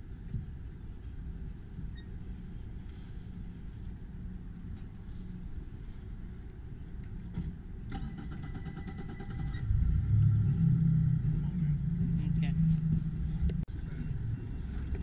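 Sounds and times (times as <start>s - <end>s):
outboard motor cranking: 7.9s - 9.8s.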